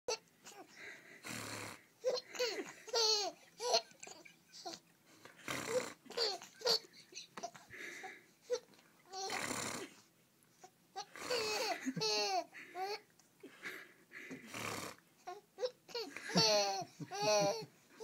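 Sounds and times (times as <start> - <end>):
infant laughing and babbling: 2.0 - 4.9, 6.0 - 7.7, 10.6 - 13.1, 15.2 - 18.0.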